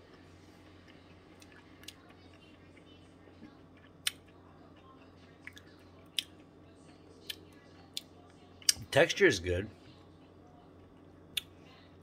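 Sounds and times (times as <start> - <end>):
low steady hum: 0.0 - 12.0
person chewing: 0.1 - 2.8.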